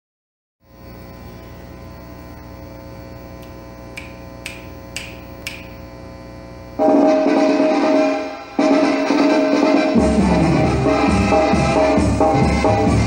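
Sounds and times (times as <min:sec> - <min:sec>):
steady electrical hum: 0:00.6 - 0:13.0
sharp clicks: 0:03.4 - 0:05.8.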